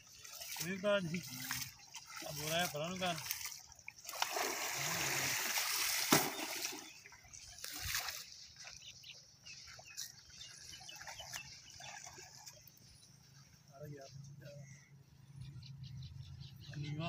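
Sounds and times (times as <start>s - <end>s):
water splashing from wading: 0.0s - 13.0s
water trickling: 0.0s - 13.8s
sharp loud splash: 4.0s - 7.0s.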